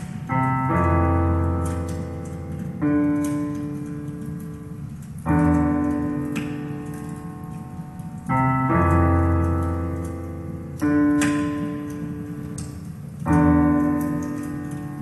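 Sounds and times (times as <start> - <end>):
slow piano chords: 0.0 - 15.0.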